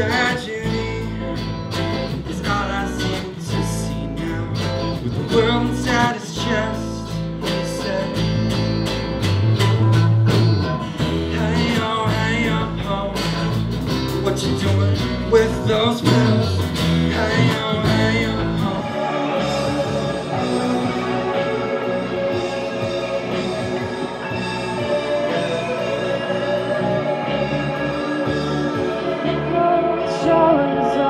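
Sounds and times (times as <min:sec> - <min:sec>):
man singing into a microphone: 0:00.0 - 0:01.4, 0:02.1 - 0:08.6, 0:11.0 - 0:31.0
acoustic guitar: 0:00.0 - 0:31.0
electric guitar: 0:00.0 - 0:31.0
low bass line: 0:00.0 - 0:31.0
drum kit steady beat: 0:08.3 - 0:29.6.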